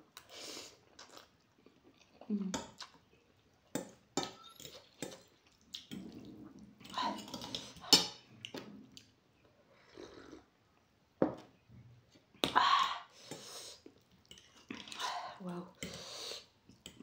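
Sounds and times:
wet chewing and smacking: 0.2 - 6.7.

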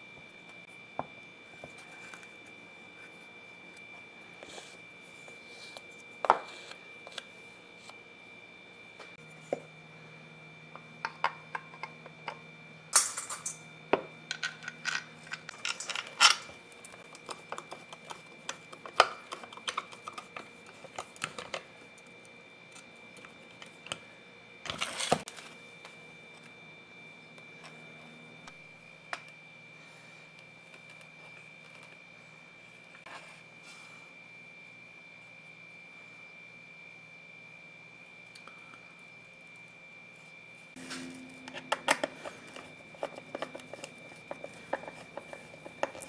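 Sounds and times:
metal parts clicking and clinking: 13.0 - 13.6, 14.3 - 16.5.

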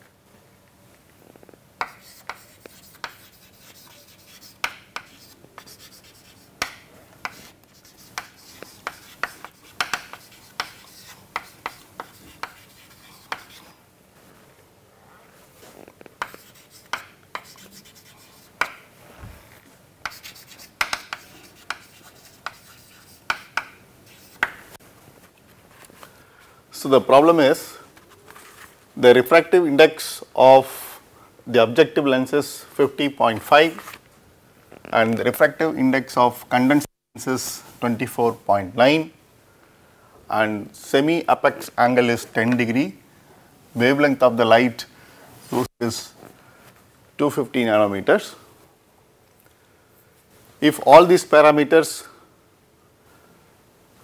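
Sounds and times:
chalk tapping and scratching on chalkboard: 1.8 - 13.8, 16.2 - 18.9, 20.0 - 24.8.

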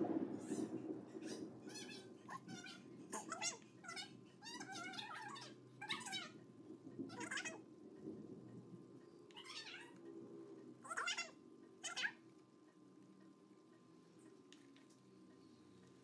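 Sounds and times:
low steady hum: 0.0 - 16.0
animal crying: 1.3 - 6.4, 7.1 - 7.6, 9.4 - 10.0, 10.8 - 12.2.

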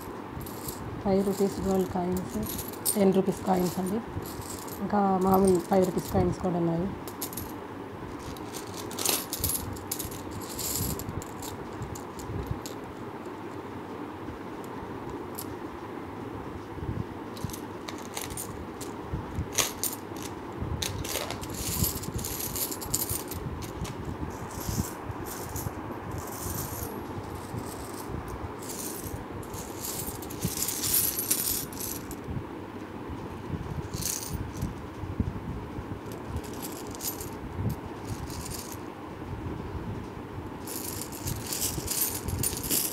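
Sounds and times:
coins clinking: 0.0 - 7.6, 8.2 - 12.9, 17.4 - 32.2, 33.9 - 34.7, 36.1 - 37.4, 38.0 - 38.8, 40.6 - 42.9.

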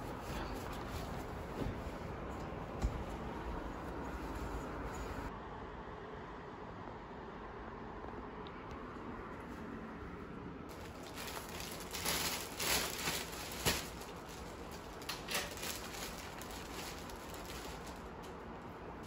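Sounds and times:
plastic packaging crinkling: 10.7 - 18.4.

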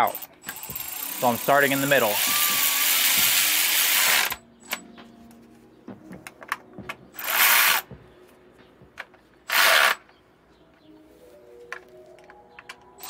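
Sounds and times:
electric ratchet running: 0.0 - 4.4, 7.2 - 7.8, 9.5 - 10.0.

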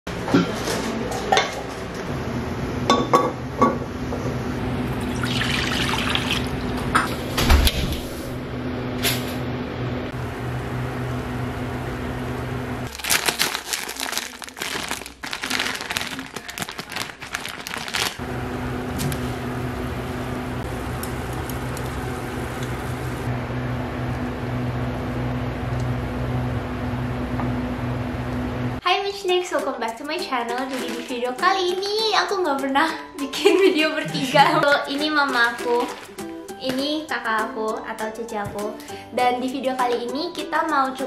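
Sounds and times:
water pouring: 5.0 - 6.8, 30.6 - 31.2, 35.3 - 36.2.

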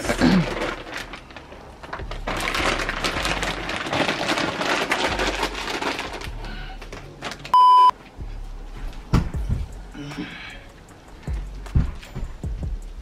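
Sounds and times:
soil and stones crackling: 0.0 - 7.6.

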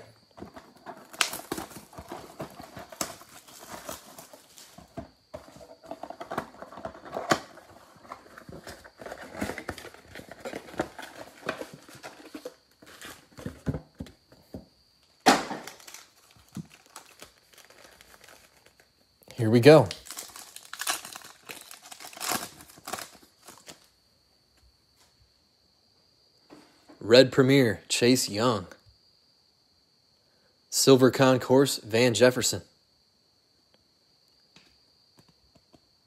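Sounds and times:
foil packs rustling and crinkling: 0.0 - 14.6, 15.4 - 19.0, 19.8 - 23.9
cardboard tearing: 0.4 - 13.7, 15.4 - 18.8, 20.0 - 23.9.

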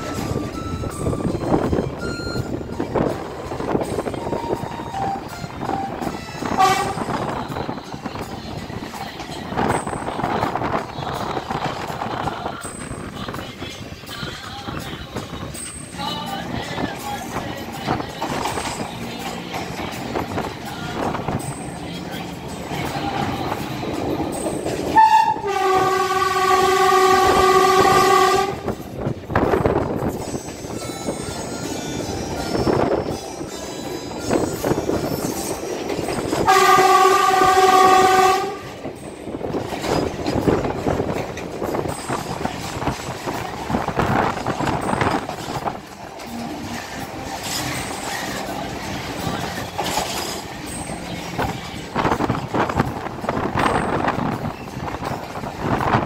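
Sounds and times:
train rumbling on rails: 0.0 - 56.0
train horn: 5.0 - 7.7, 24.9 - 28.9, 36.3 - 38.9.

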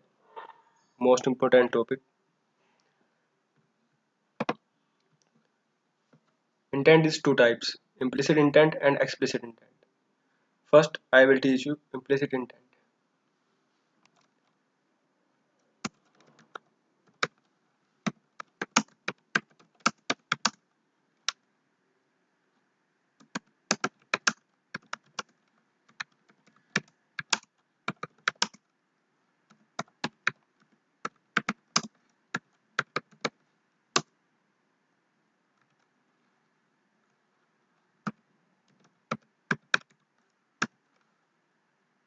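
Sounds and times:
typing on computer keyboard: 4.4 - 4.6, 18.1 - 20.6, 23.2 - 28.6, 29.5 - 30.4, 31.0 - 33.4, 38.1 - 40.0.

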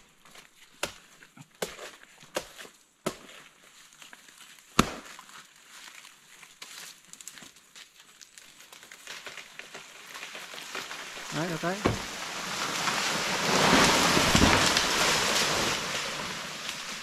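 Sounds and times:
leaves rustling: 3.4 - 17.0
chopping into plant stem: 4.8 - 5.1.

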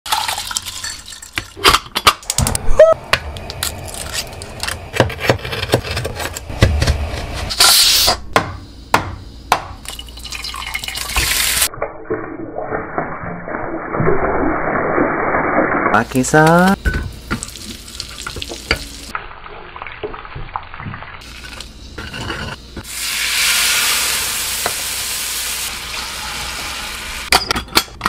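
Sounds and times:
oil sizzling in frying pan: 16.8 - 22.0, 22.8 - 27.3.

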